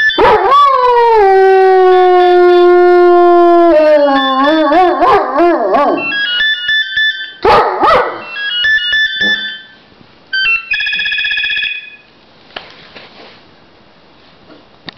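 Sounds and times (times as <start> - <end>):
dog howling: 0.2 - 6.1
electronic phone ring: 6.0 - 7.4, 8.2 - 12.1
phone ringtone beeping tune: 6.0 - 7.4, 8.2 - 12.1.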